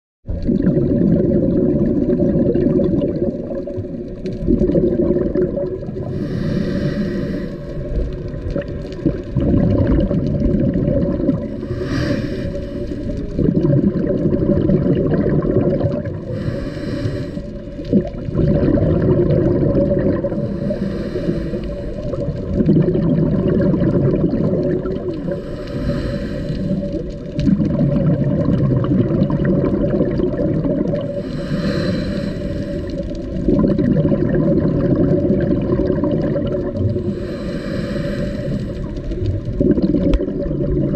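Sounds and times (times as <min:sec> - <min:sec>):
exhaled bubbles gurgling: 0:00.3 - 0:40.9
regulator inhale hiss: 0:06.1 - 0:08.0, 0:11.5 - 0:13.4, 0:16.3 - 0:17.8, 0:20.3 - 0:22.3, 0:25.1 - 0:27.2, 0:31.0 - 0:33.4, 0:36.9 - 0:39.2.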